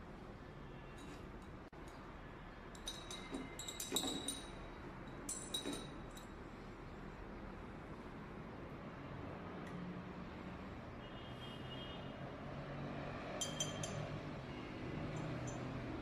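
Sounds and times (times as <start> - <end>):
glassware clinking: 2.8 - 6.3, 13.4 - 14.2, 15.1 - 15.8.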